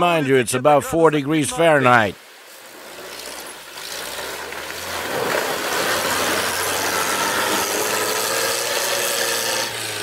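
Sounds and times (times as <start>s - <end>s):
water churning around wheels: 1.7s - 10.0s
jeep engine running hard: 3.2s - 10.0s.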